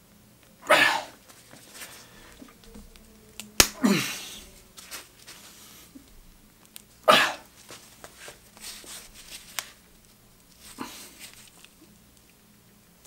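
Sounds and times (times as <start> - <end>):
webbing straining: 0.5 - 9.2
sharp snap: 3.4 - 3.8.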